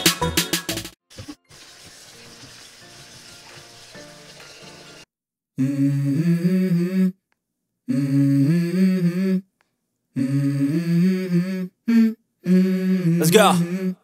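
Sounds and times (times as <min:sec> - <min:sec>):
hummed vocal melody: 0:05.6 - 0:09.5, 0:10.1 - 0:14.0.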